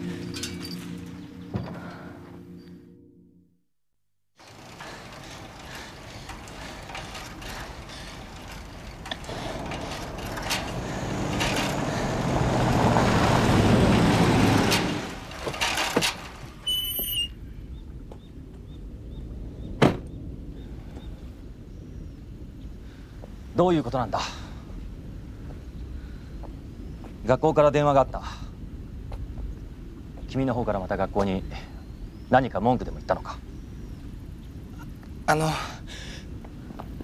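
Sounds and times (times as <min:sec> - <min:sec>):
vehicle engine and road noise: 0:00.0 - 0:02.1, 0:04.4 - 0:23.6.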